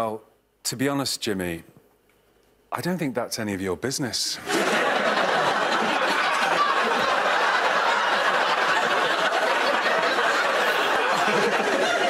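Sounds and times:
studio audience laughing: 4.4 - 12.0.

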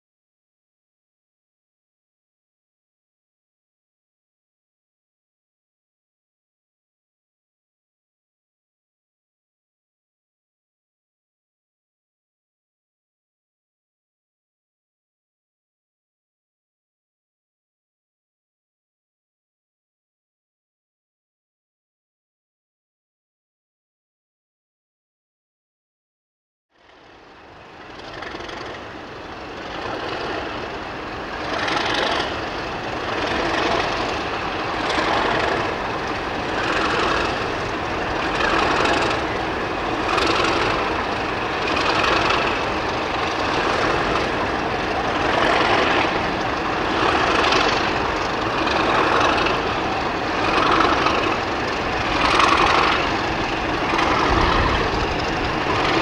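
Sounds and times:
diesel locomotive engine running: 26.8 - 56.0.

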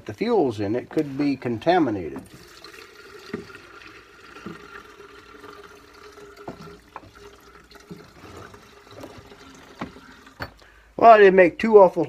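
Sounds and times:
fuel pouring into glass jar: 2.2 - 10.6.

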